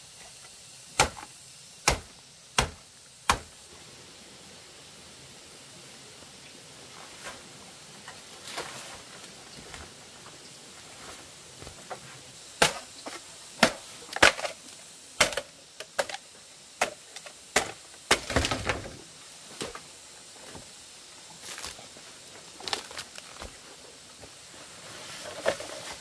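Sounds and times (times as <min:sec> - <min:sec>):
blade chopping wood: 0:01.0 - 0:03.5, 0:12.6 - 0:14.6, 0:15.2 - 0:16.2, 0:16.8 - 0:18.9
crackling rustle: 0:05.8 - 0:26.0.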